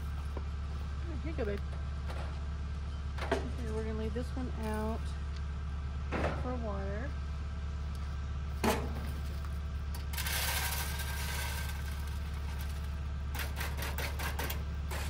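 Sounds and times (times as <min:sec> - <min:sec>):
steady low hum: 0:00.0 - 0:15.0
feed pellets pouring into bowl: 0:10.2 - 0:12.8.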